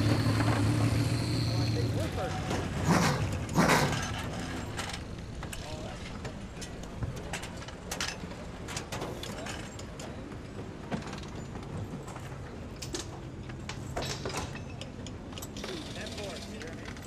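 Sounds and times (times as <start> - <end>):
metallic tool clicks and clanks: 14.0 - 17.0.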